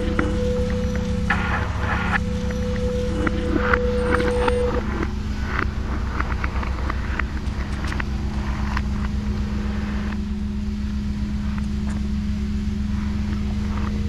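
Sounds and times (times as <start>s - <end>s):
faint higher tone: 0.0s - 5.9s
ambient drone music: 0.0s - 14.0s
crackles and clicks: 0.0s - 14.0s.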